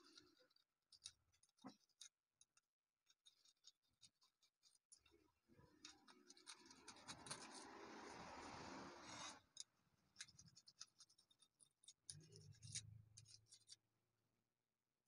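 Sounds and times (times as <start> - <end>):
hand scratching on stone: 5.8 - 9.6, 10.2 - 13.8.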